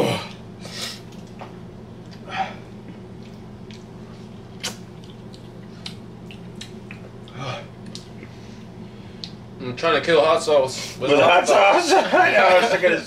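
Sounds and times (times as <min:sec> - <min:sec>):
steady low hum: 0:00.0 - 0:13.0
wet chewing smacks: 0:02.8 - 0:08.4.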